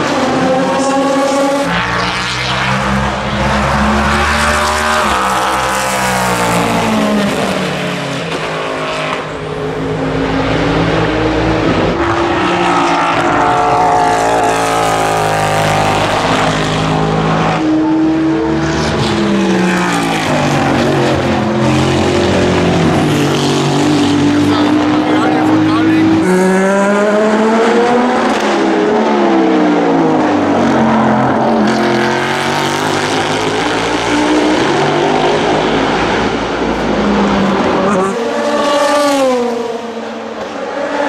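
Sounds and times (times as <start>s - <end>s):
race car engine revving past: 10.2s - 41.0s.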